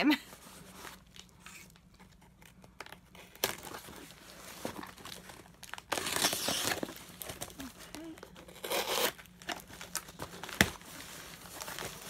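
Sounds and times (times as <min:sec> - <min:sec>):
cardboard crinkling and rustling: 0:00.4 - 0:12.0
cardboard tearing: 0:03.1 - 0:12.0.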